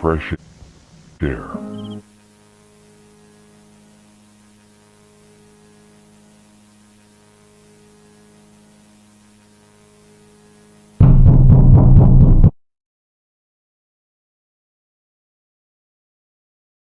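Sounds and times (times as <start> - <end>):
faint hiss: 0.0 - 11.0
low electrical hum: 0.0 - 11.0.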